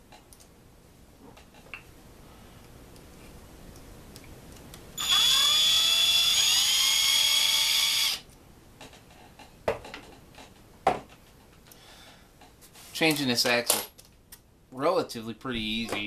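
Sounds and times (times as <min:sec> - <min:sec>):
cordless drill motor whine: 0:05.0 - 0:08.2.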